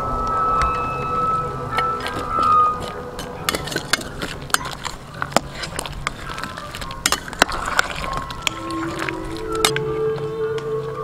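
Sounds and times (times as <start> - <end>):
metal clinking on pot: 1.8 - 9.8
ladle stirring thick curry: 1.9 - 10.1.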